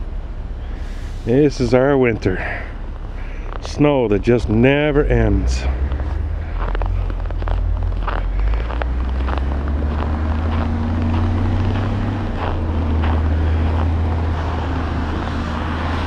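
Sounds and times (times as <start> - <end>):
faint hum: 0.0 - 9.3
low rumble: 0.0 - 16.0
footsteps on packed snow: 3.0 - 16.0.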